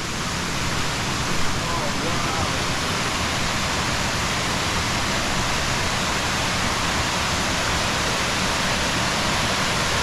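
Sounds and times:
waterfall rushing: 0:00.0 - 0:10.0.

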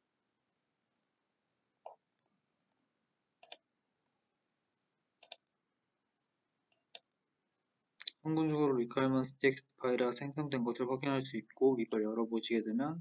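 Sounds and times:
computer mouse double-clicking: 0:03.4 - 0:03.6.

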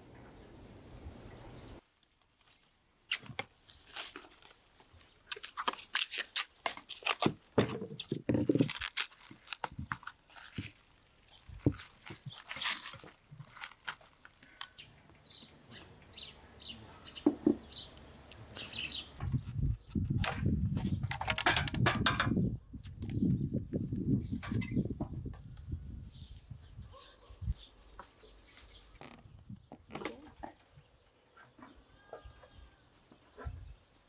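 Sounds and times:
cling film crinkling and tearing: 0:01.8 - 0:14.8, 0:27.6 - 0:29.4
bird chirping: 0:14.4 - 0:20.2.

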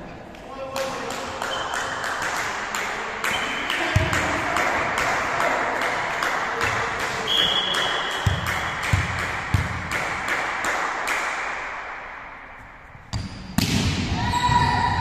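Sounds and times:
volleyball taps and thuds: 0:03.9 - 0:04.3, 0:06.6 - 0:10.3, 0:13.1 - 0:14.0
referee's whistle: 0:07.2 - 0:08.4.

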